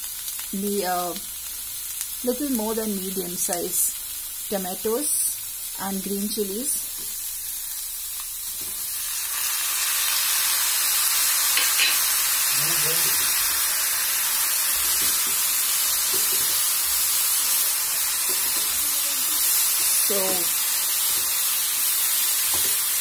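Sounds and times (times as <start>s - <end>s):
vegetables sizzling in oil: 0.0s - 23.0s
spatula stirring vegetables: 11.0s - 23.0s.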